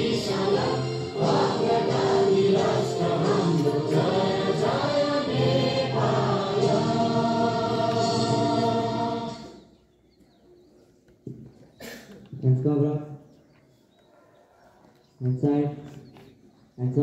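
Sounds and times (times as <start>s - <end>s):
children singing in unison: 0.0s - 9.6s.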